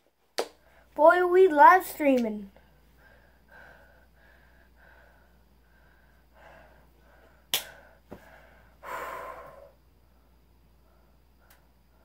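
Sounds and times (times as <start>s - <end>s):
boy breathing softly: 2.6s - 12.0s.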